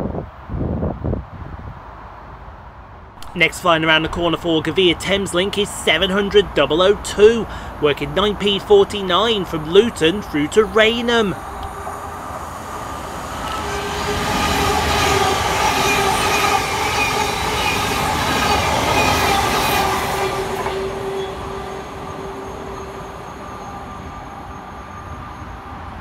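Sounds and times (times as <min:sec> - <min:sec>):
train wheel and rail noise: 0:03.2 - 0:26.0
train whine: 0:03.2 - 0:26.0.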